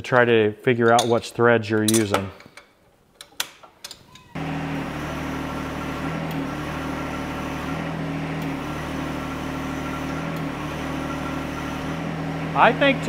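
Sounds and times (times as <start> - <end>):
tractor diesel engine running: 4.4 - 13.0.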